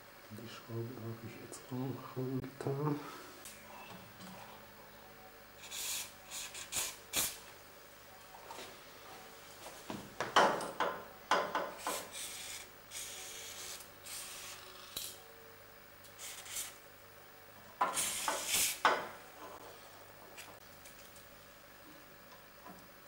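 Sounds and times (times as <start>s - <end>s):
aerosol spray can hissing: 5.6s - 7.4s, 17.9s - 18.8s.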